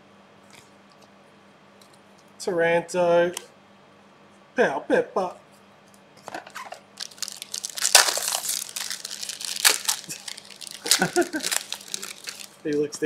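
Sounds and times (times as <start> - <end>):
foil wrappers crinkling: 6.4 - 12.9
foil wrapper tearing: 6.5 - 12.9.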